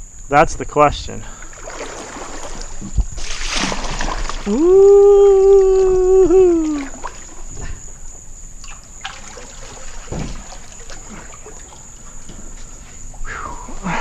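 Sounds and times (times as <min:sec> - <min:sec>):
water sloshing around a kayak: 0:01.2 - 0:13.2
paddle knocks: 0:09.9 - 0:11.4.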